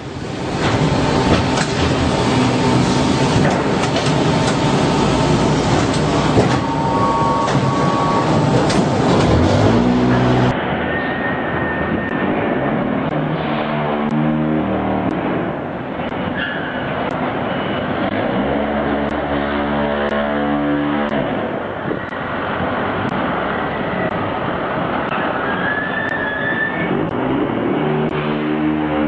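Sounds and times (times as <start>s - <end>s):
dull machine hum with high tone: 0.0s - 16.3s
machinery clattering with whine: 0.0s - 29.0s.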